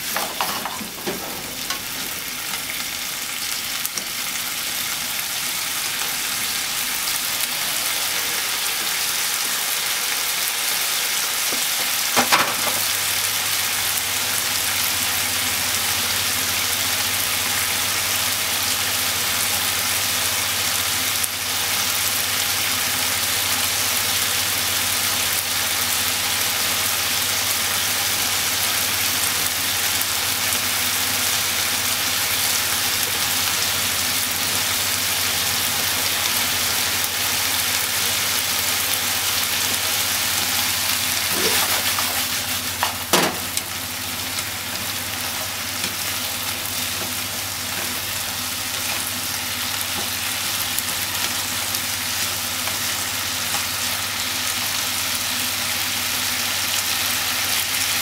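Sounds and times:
food sizzling in a frying pan: 0:00.0 - 0:58.0.

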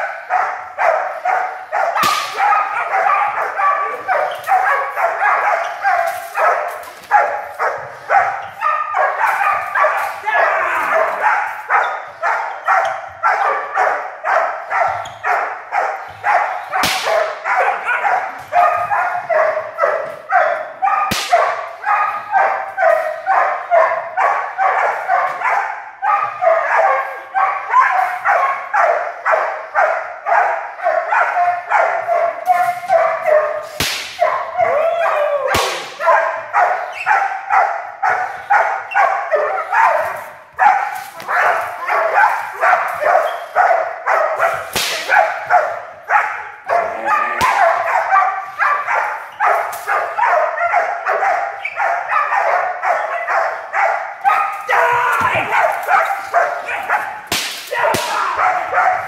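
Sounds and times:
puppies barking rapidly: 0:00.0 - 0:59.0
sharp cracks: 0:02.0 - 0:02.6, 0:16.8 - 0:17.4, 0:21.1 - 0:21.5, 0:33.8 - 0:34.3, 0:35.5 - 0:36.0, 0:44.6 - 0:45.3, 0:56.9 - 0:58.7.

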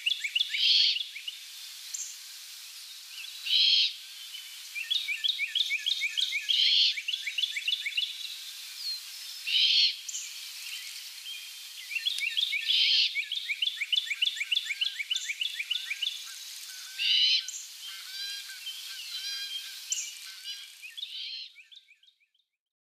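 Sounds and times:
songbird chirping: 0:00.0 - 0:22.5
owl fledgling raspy screech: 0:03.5 - 0:03.9, 0:09.5 - 0:10.0, 0:16.7 - 0:21.5.

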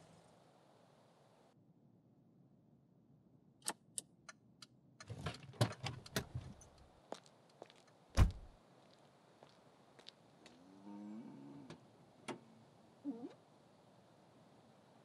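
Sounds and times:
car door slam: 0:08.2 - 0:08.5.

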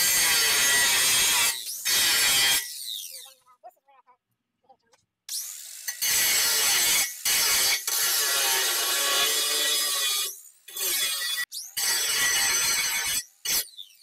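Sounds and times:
angle grinder cutting steel: 0:00.0 - 0:03.0, 0:05.3 - 0:13.8.

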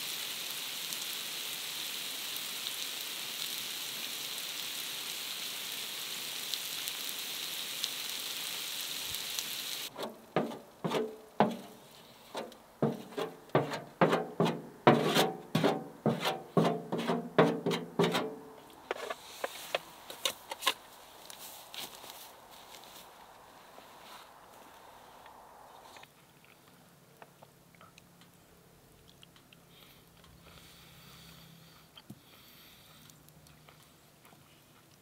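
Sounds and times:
food sizzling on stove top: 0:00.0 - 0:12.1
rustling: 0:09.8 - 0:26.7
utensil scraping metal stove top: 0:09.9 - 0:20.7.

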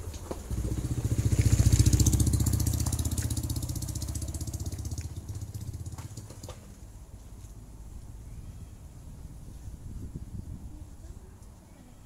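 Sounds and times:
engine passing by: 0:00.0 - 0:08.4.

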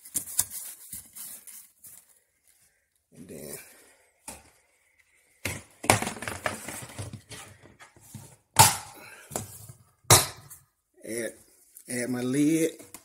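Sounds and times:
plastic lid knocking and rattling: 0:05.8 - 0:07.2
plastic lid rustling: 0:05.8 - 0:08.4.

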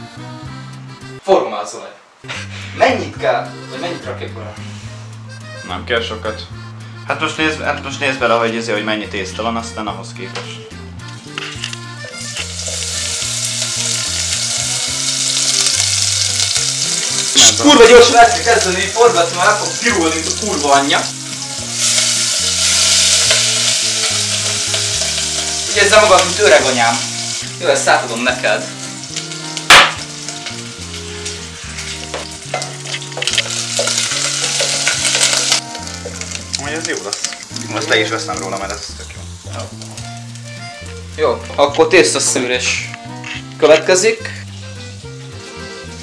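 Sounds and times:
low background music: 0:00.0 - 0:46.0
food sizzling in hot oil: 0:11.9 - 0:46.0.

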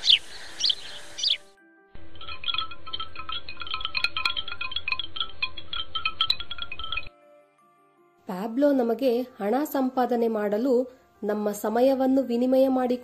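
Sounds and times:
bird chirps: 0:00.0 - 0:01.5
wind chimes tinkling: 0:02.0 - 0:07.1.

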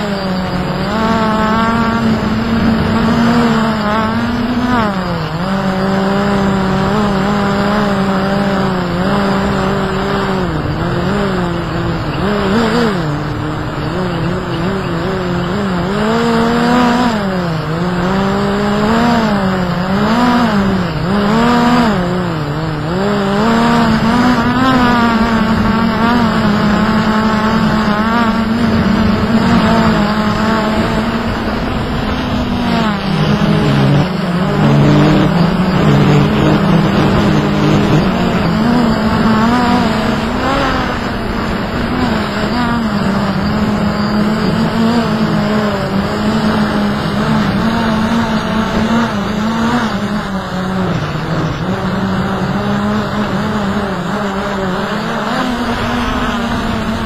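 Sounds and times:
drone propellers whining: 0:00.0 - 0:57.0
wind on microphone: 0:23.5 - 0:54.3.

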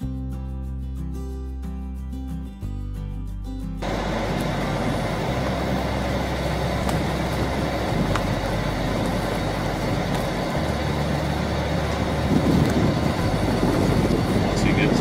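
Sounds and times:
combine harvester engine running: 0:03.8 - 0:15.0.

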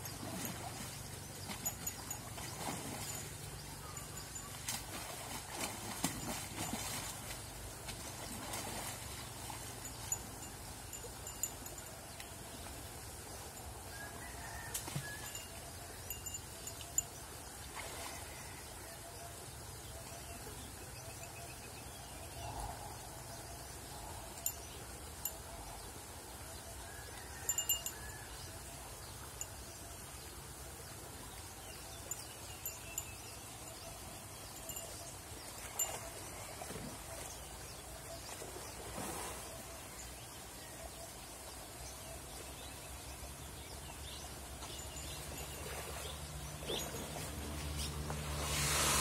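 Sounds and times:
water movement: 0:00.0 - 0:18.6.

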